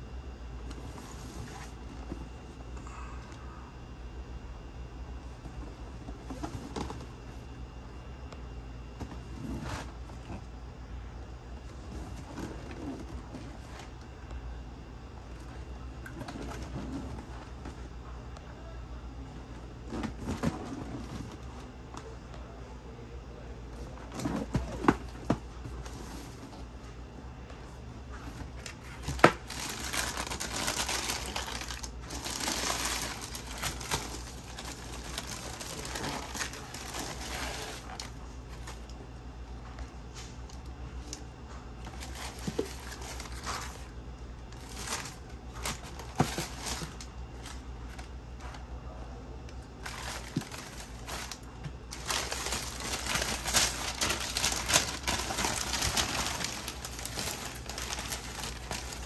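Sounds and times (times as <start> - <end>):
tissue paper rustling and crinkling: 28.1 - 38.8, 41.8 - 44.0, 44.6 - 48.5, 49.8 - 59.0.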